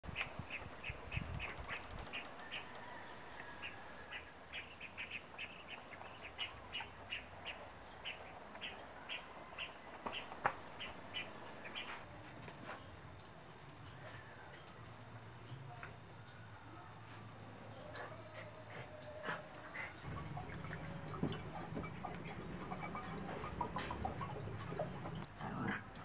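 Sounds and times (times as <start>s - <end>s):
bird chirping: 0.1s - 12.0s, 20.0s - 25.3s.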